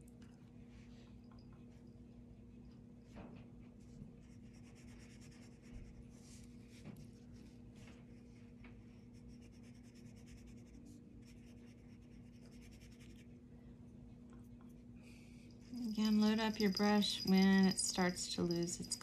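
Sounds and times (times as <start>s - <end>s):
faint steady hum: 0.0s - 19.0s
brush stroking paint onto paper: 4.2s - 13.3s.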